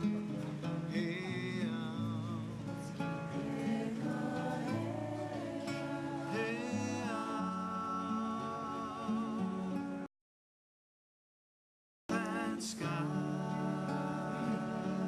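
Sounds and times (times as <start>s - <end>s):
acoustic guitar strumming: 0.0s - 10.1s, 12.1s - 15.0s
voices singing long notes: 3.3s - 9.9s, 12.1s - 15.0s.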